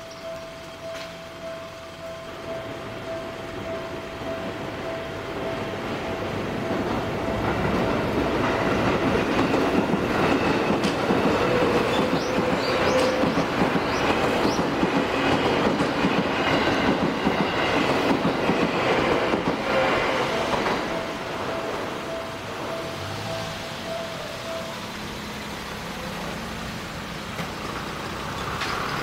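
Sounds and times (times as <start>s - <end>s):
level crossing warning tone: 0.0s - 26.1s
train wheel clatter: 5.3s - 25.2s, 26.9s - 29.0s
high wheel squeals: 11.2s - 15.6s, 19.6s - 29.0s.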